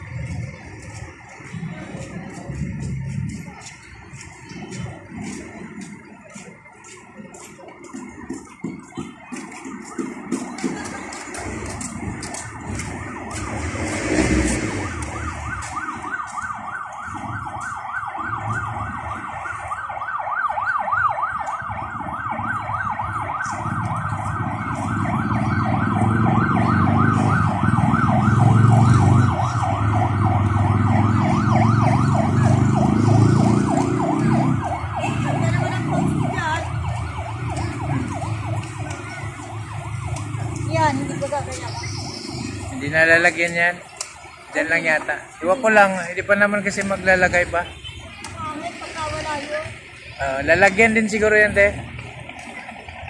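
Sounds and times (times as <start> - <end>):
low traffic rumble: 0.0 - 53.0
electronic siren yelping: 5.8 - 52.0.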